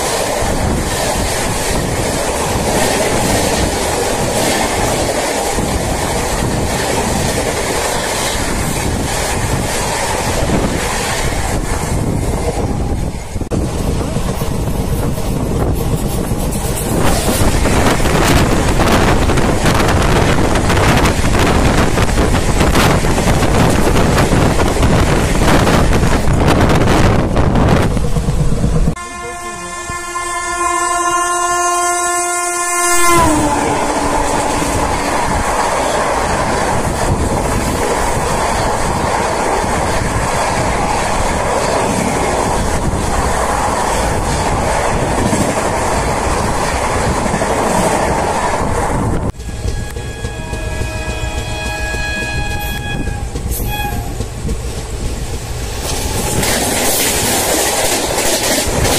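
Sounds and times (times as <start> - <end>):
train wheels rail noise: 0.0 - 30.7, 32.8 - 58.9
train horn chord: 29.0 - 35.2, 49.4 - 54.1.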